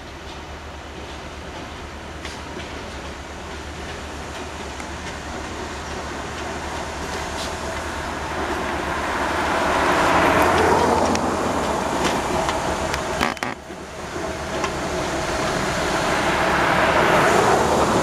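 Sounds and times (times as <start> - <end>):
diesel locomotive rumbling: 0.0 - 18.0
car passing by: 8.6 - 12.6, 15.9 - 18.0.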